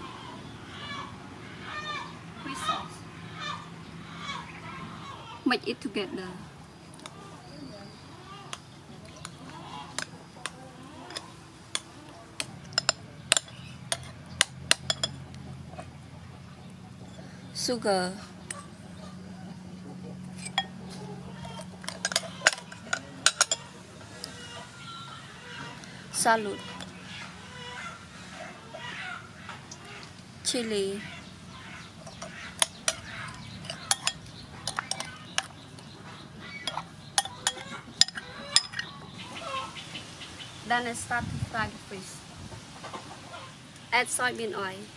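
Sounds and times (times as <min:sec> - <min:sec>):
metal spoon clinking on bowl: 0:12.6 - 0:15.2, 0:20.4 - 0:23.7, 0:32.0 - 0:35.6, 0:36.7 - 0:38.9.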